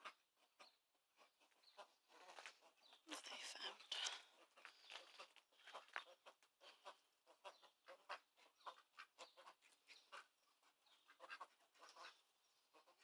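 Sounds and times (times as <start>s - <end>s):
ducks quacking softly: 0.0s - 13.0s.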